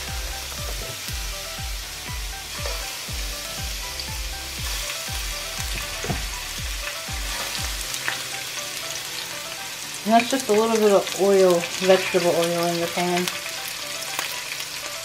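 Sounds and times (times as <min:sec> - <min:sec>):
background music with bass beat: 0:00.0 - 0:08.4
shrimp sizzling in oil: 0:00.0 - 0:15.0.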